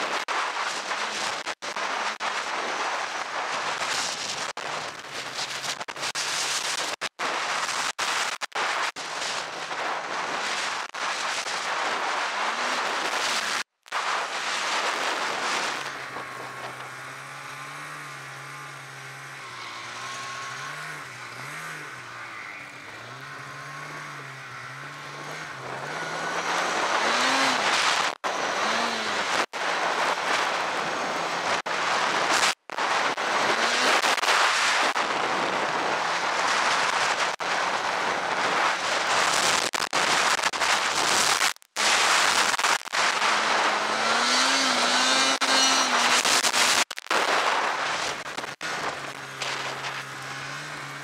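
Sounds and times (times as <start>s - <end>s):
rushing wind and snow: 0.0s - 51.0s
snowmobile engine revving: 11.7s - 51.0s.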